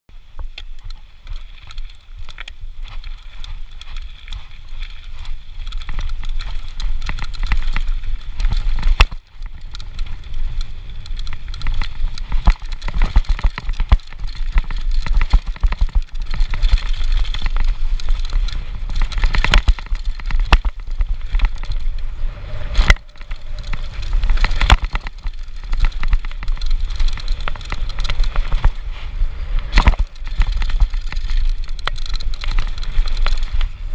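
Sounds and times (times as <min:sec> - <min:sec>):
bike chain and frame rattling: 0:00.2 - 0:33.9
tyres rolling over gravel: 0:00.3 - 0:33.9
wind buffeting microphone: 0:00.4 - 0:33.9.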